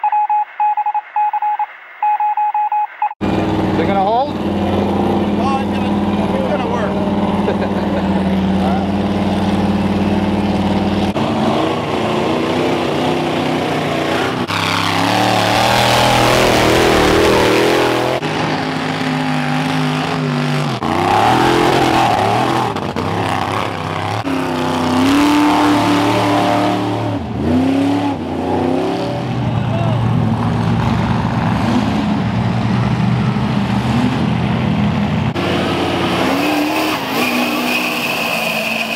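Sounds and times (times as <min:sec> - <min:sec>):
truck engines revving: 0:03.2 - 0:38.9.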